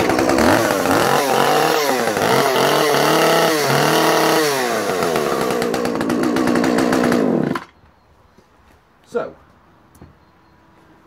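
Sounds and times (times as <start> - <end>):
chainsaw engine surging: 0.0 - 7.7.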